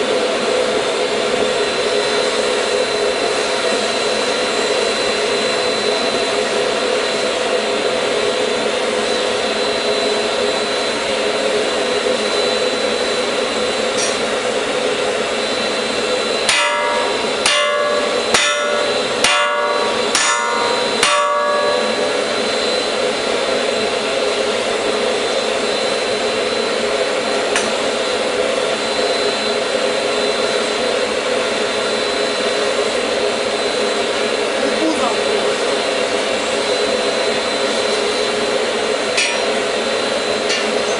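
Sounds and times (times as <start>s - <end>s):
hammer ringing on steel bar: 16.5s - 22.7s.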